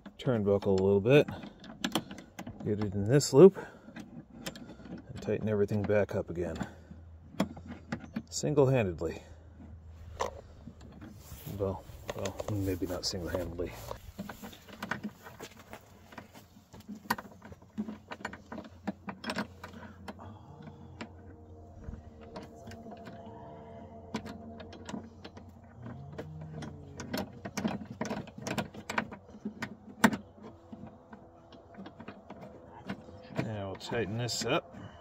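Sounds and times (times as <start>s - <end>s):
faint hum: 9.1s - 35.0s.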